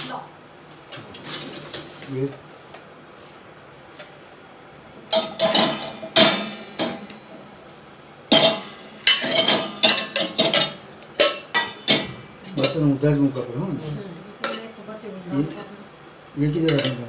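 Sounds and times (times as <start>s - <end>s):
steel dishes clanking: 0.9s - 2.2s, 5.1s - 7.2s, 8.3s - 13.0s, 16.6s - 17.0s.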